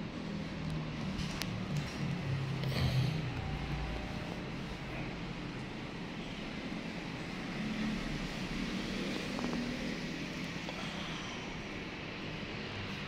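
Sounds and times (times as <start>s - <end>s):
low hum: 0.2s - 13.0s.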